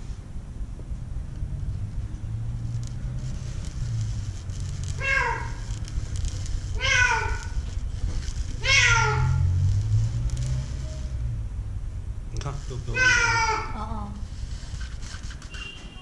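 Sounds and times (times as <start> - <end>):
low steady rumble: 0.0 - 15.5
cat meowing: 5.0 - 5.7, 6.7 - 7.6, 8.6 - 9.7, 12.9 - 14.2.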